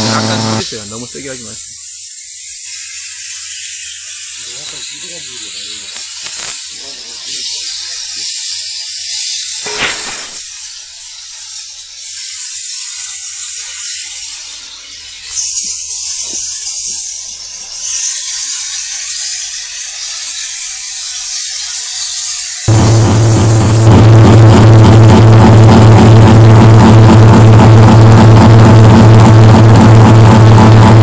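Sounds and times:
thermal fogger hissing: 0.0s - 31.0s
brief knock: 9.6s - 10.4s.

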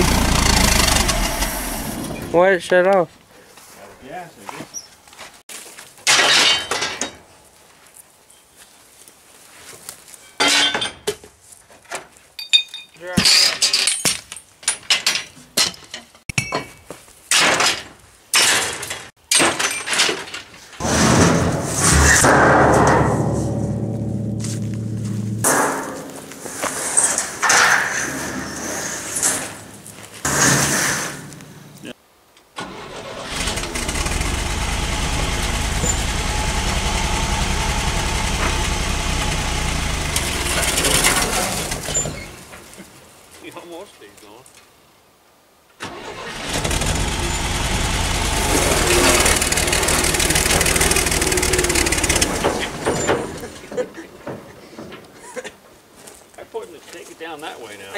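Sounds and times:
truck engine running unevenly: 0.0s - 2.3s, 33.4s - 42.1s, 46.4s - 53.4s
metal crashes: 6.0s - 7.2s, 17.3s - 31.6s, 33.6s - 42.6s, 46.0s - 54.5s
scrap metal clanking: 17.4s - 31.7s, 36.9s - 42.7s, 46.0s - 55.4s.

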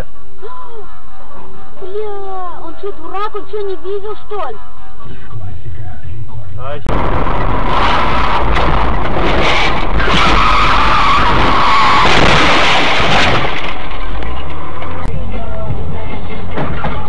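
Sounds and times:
road noise: 4.2s - 17.0s
car tyres squealing: 8.2s - 15.0s.

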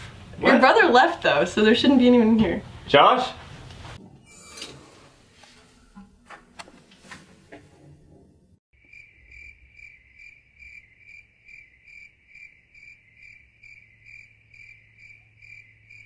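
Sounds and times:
crickets chirping: 8.8s - 16.0s.

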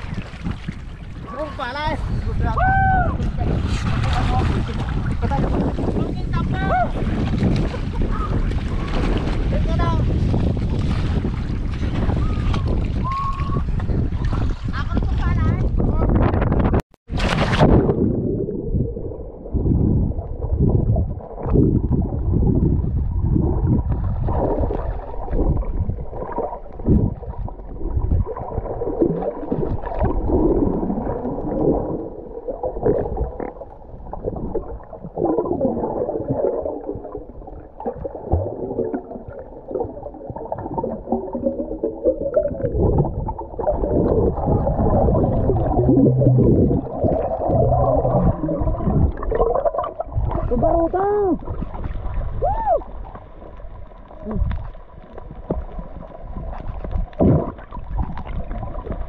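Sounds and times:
underwater seawater rumbling: 0.0s - 59.0s
bubbles gurgling: 17.1s - 59.0s.

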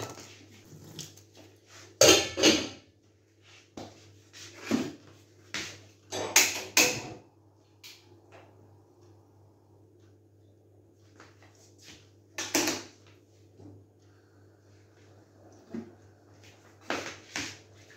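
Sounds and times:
cookware knocks and clanks: 2.0s - 2.8s, 6.1s - 7.2s
steady low hum: 7.0s - 12.2s, 13.0s - 17.9s.

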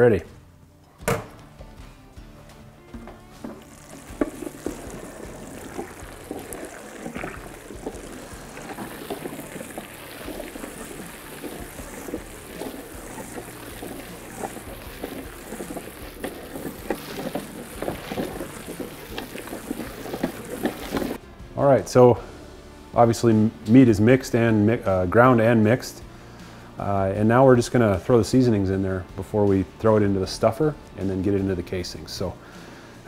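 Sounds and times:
meat mixer squelching and slapping: 3.3s - 21.2s.

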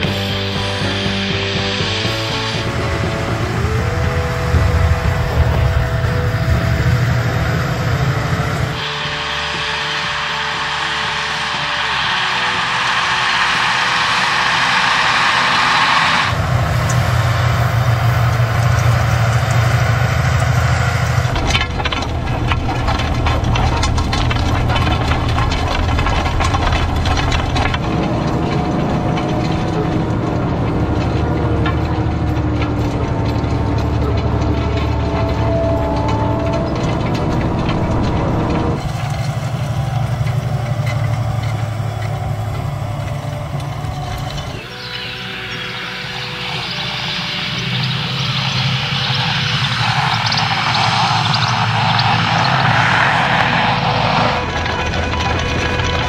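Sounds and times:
tractor diesel engine running: 0.0s - 56.0s
discs clicking and rattling: 14.3s - 44.8s.

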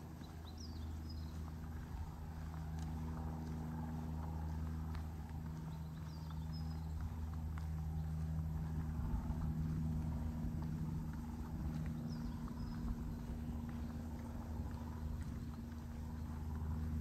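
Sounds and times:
bird chirp: 0.0s - 2.6s, 5.5s - 8.2s, 11.4s - 17.0s
footsteps on hard ground: 0.0s - 17.0s
low mechanical hum: 0.0s - 17.0s.

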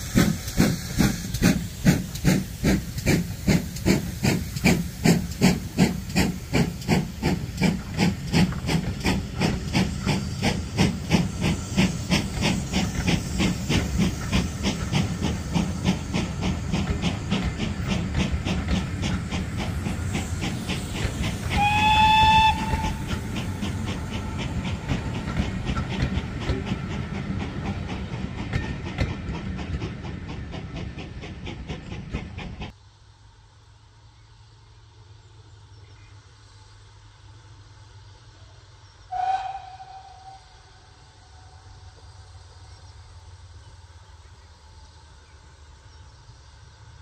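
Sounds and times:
steam train chuffing: 0.0s - 47.0s
steam locomotive whistle: 21.4s - 23.4s, 39.1s - 41.7s
coaches clattering on track: 22.6s - 32.6s.

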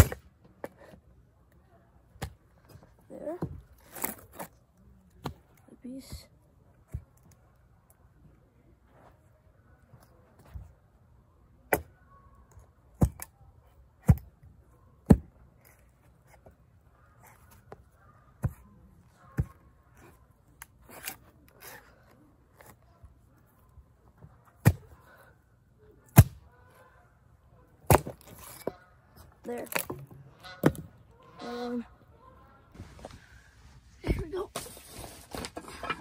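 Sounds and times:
axe chopping wood: 0.0s - 0.3s, 13.0s - 13.3s, 14.0s - 14.4s, 15.0s - 15.8s, 24.6s - 25.0s, 26.1s - 26.4s, 27.8s - 28.7s.

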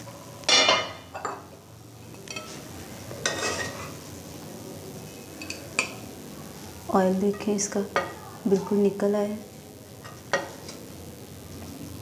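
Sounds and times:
metal spoon scraping a steel pan: 3.2s - 4.0s.

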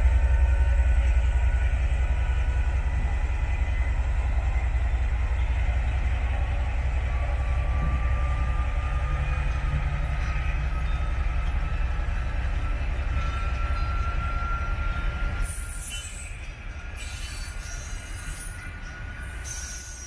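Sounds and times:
diesel locomotive engine rumbling: 0.0s - 20.0s.

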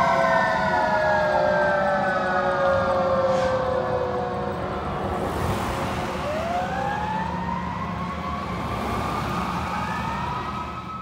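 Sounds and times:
fire truck siren wailing: 0.0s - 11.0s
passing road traffic: 0.0s - 11.0s.

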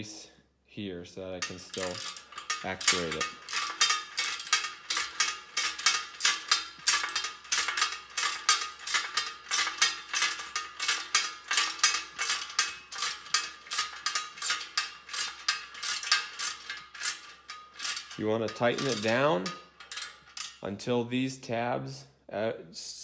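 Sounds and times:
socket ratchets clicking: 1.4s - 18.2s.

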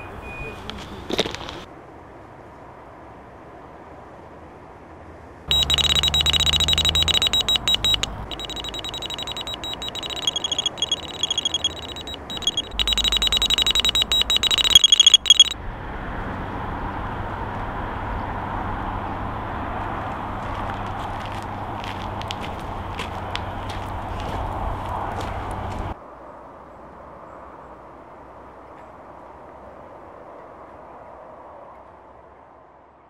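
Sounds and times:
electronic bite alarm beeping: 5.5s - 15.6s.

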